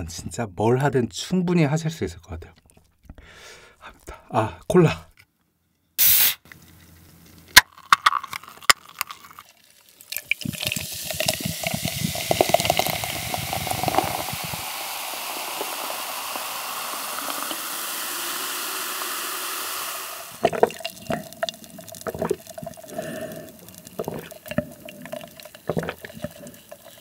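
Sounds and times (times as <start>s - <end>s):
soda pouring and fizzing: 6.0s - 6.4s, 7.6s - 27.0s.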